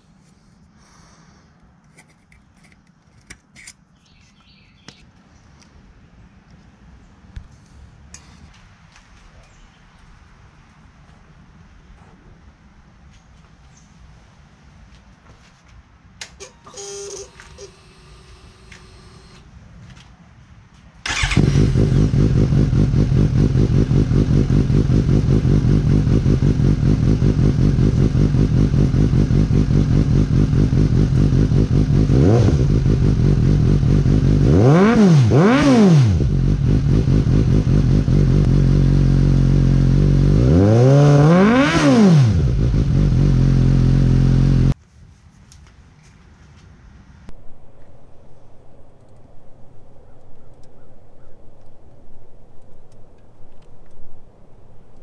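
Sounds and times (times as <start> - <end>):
motorcycle engine idling and revving: 21.0 - 44.8.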